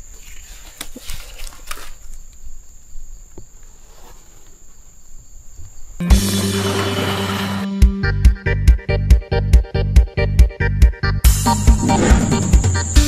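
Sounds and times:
insect trill: 0.0s - 7.6s, 11.4s - 13.0s.

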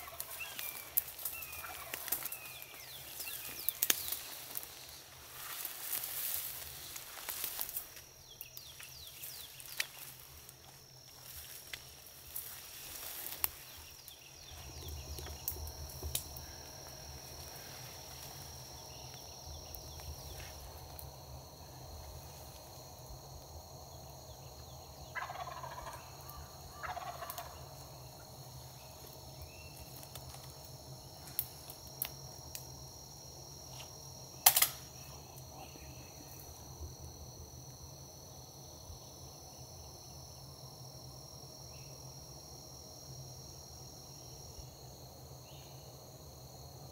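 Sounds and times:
turkey gobbling: 0.0s - 0.8s, 1.4s - 2.3s, 25.1s - 27.6s
high insect trill: 0.0s - 46.9s
sharp crack: 34.4s - 34.9s.

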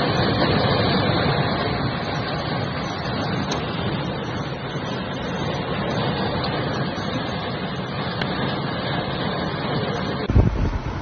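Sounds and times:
blizzard wind rushing: 0.0s - 11.0s
vehicle moving from inside: 10.3s - 11.0s.

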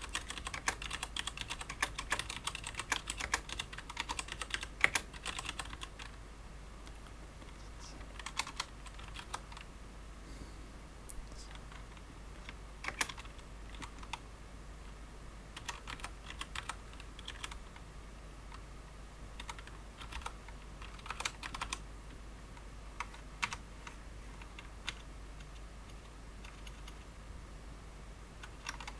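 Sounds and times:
mechanical keyboard typing: 0.0s - 6.1s, 8.1s - 9.7s, 11.7s - 14.2s, 15.6s - 17.8s, 19.4s - 21.8s, 23.0s - 27.0s, 28.4s - 28.9s.

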